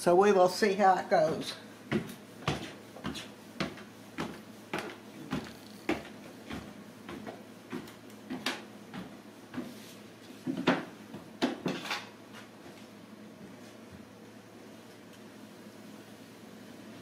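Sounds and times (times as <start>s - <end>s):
footsteps on wooden stairs: 1.2s - 11.7s.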